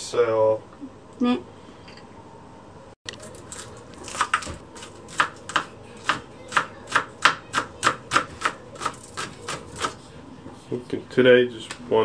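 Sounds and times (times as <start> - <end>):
knife chopping on cutting board: 3.2 - 10.0.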